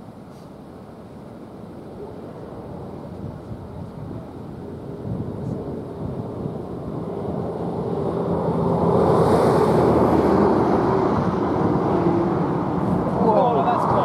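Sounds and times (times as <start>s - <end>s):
road vehicle approaching: 4.6s - 14.0s.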